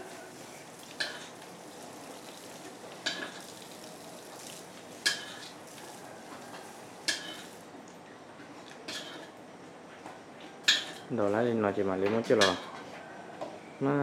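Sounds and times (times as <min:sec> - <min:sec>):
food sizzling in a pan: 0:00.0 - 0:07.7
metal utensil clinking on pan: 0:05.0 - 0:05.5, 0:07.1 - 0:07.5, 0:10.7 - 0:11.1, 0:12.4 - 0:12.8.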